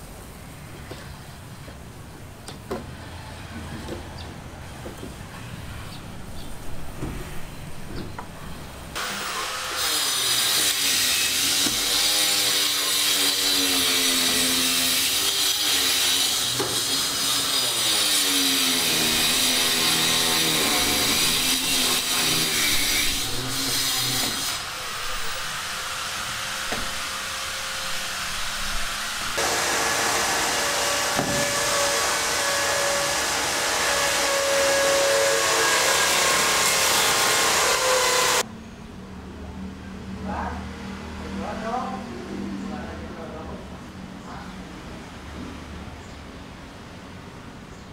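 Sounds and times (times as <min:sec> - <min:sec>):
power tool cutting: 0:09.0 - 0:38.4.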